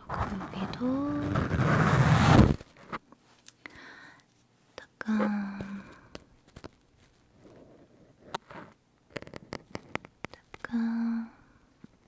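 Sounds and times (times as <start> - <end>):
tool scratching on microphone: 0.0 - 3.0.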